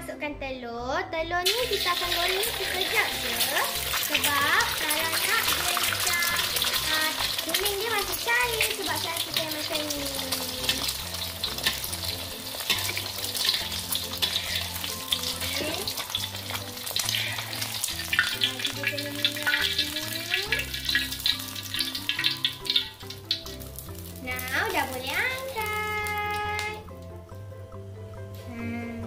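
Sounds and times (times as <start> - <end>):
egg sizzling in oil: 1.4 - 27.4
metal spatula scraping pan: 10.6 - 18.7.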